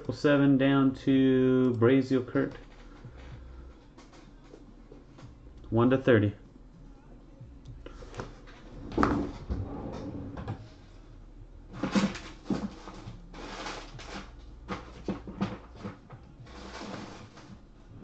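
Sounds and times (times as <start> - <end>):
rustling: 11.8 - 18.0.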